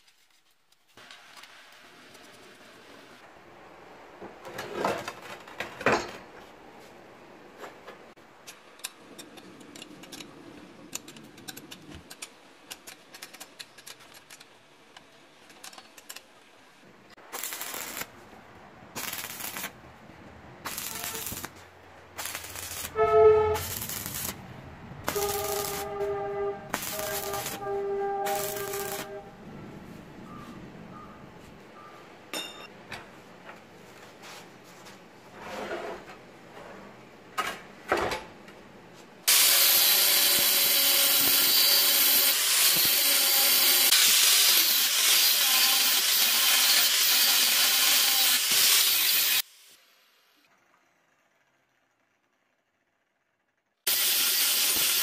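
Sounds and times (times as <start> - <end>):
arc welding bursts: 17.2 - 18.2, 18.9 - 19.8, 20.6 - 24.4, 25.0 - 29.2, 39.3 - 49.8, 53.9 - 55.0.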